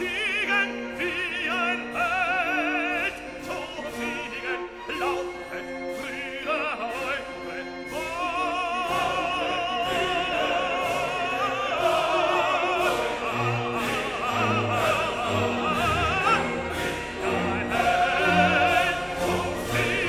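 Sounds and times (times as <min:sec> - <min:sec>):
operatic singing: 0:00.0 - 0:20.0
orchestra: 0:00.0 - 0:20.0.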